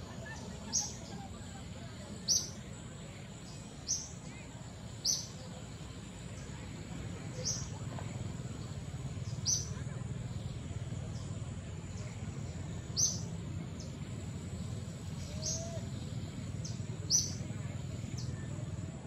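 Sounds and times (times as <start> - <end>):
low background rumble: 0.0 - 19.0
high bird chirps: 12.9 - 14.0.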